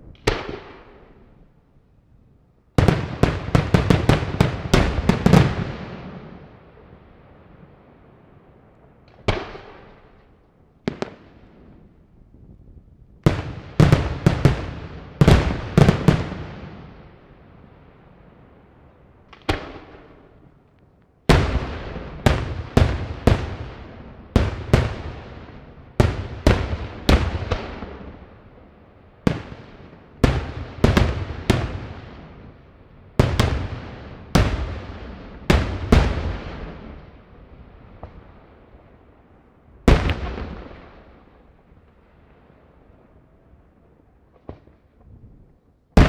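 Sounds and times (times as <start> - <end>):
fireworks bangs with echo: 0.0 - 1.5, 2.8 - 8.3, 9.0 - 12.0, 13.2 - 20.6, 21.2 - 43.4, 44.3 - 45.2.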